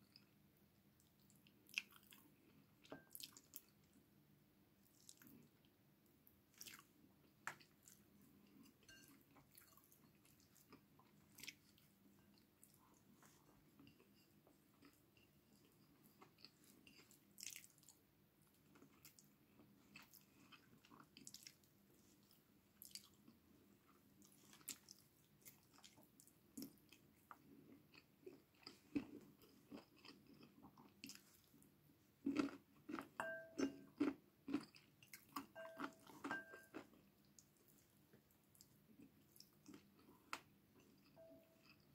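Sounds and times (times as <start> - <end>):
close-up chewing: 7.5 - 41.9.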